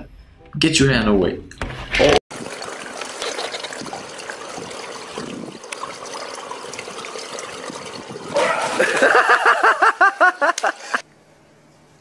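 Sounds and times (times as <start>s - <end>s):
water lapping and trickling: 2.3s - 11.1s.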